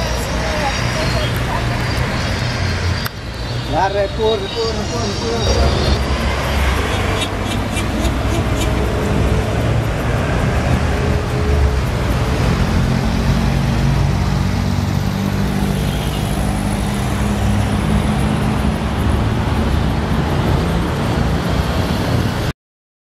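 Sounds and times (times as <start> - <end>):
car and van engines passing: 0.0 - 22.5.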